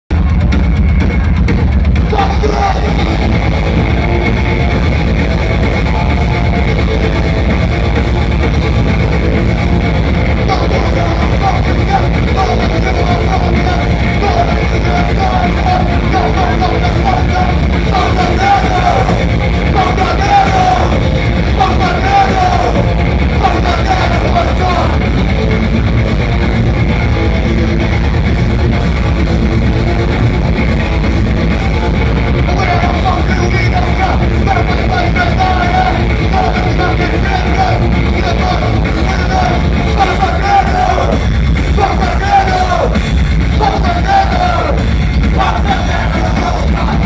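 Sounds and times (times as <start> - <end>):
punk rock band playing: 0.1 - 47.0
shouted vocals: 2.0 - 3.7, 10.3 - 25.1, 32.4 - 47.0.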